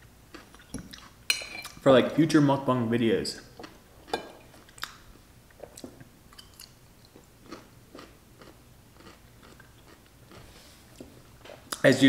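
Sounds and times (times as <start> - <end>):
chewing crunchy pickle: 5.7 - 10.5.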